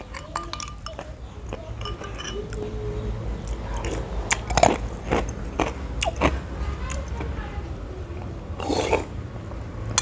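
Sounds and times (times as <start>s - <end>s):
person spooning and chewing: 0.0s - 2.7s, 3.4s - 7.2s.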